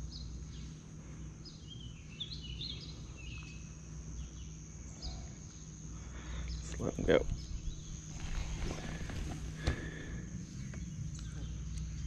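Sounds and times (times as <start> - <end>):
high-pitched insect drone: 0.0 - 12.0
low steady hum: 0.0 - 12.0
bird chirps: 1.4 - 5.7.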